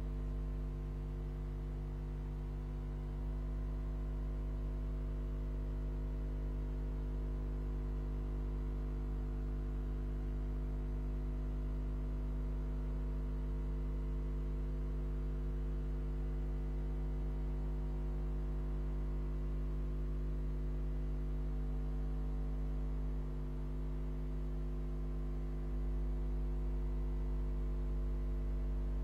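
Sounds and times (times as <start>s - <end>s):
electrical mains hum: 12.5s - 29.0s.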